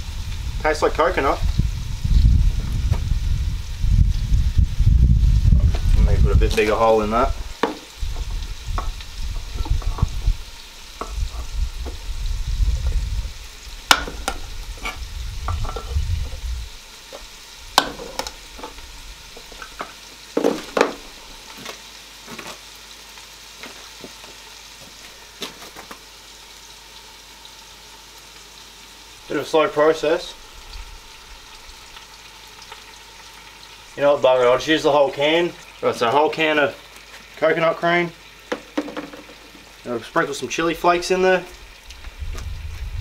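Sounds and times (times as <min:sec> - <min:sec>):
food sizzling: 0:00.0 - 0:43.0
tin thumping on table: 0:38.5 - 0:39.4.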